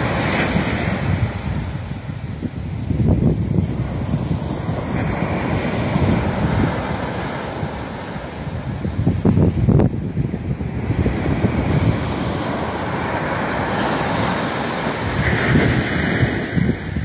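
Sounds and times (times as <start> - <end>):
surf breaking on beach: 0.0 - 17.0
wind gusting on microphone: 0.0 - 17.0.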